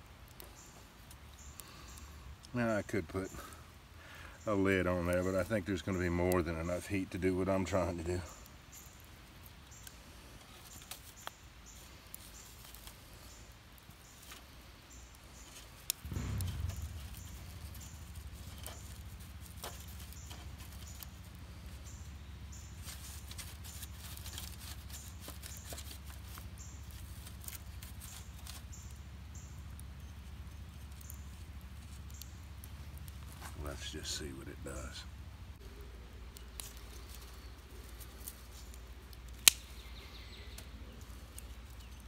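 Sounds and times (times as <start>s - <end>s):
wood fire crackling: 0.0s - 42.0s
steady low rumble: 15.9s - 23.5s
sharp knock: 16.0s - 17.4s.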